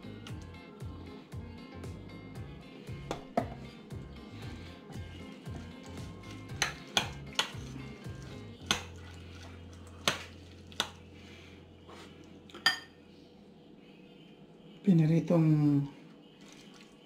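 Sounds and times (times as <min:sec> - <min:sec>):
metal spoon clinking on ceramic bowl: 0:12.6 - 0:12.9.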